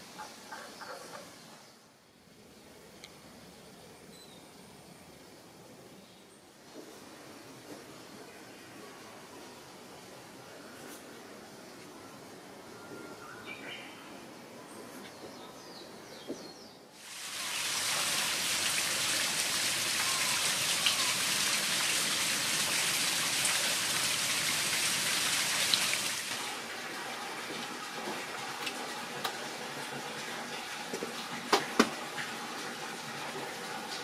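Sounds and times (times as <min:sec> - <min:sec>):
faint bird chirps: 0:10.4 - 0:16.8
flowing water rushing: 0:17.0 - 0:34.0.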